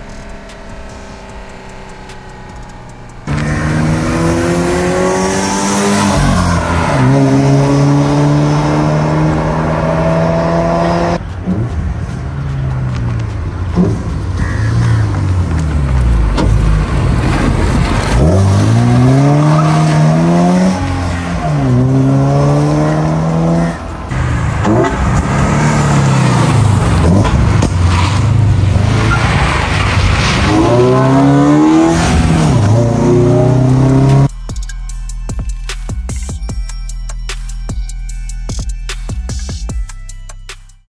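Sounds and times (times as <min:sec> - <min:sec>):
car engine accelerating past: 0:00.0 - 0:11.8.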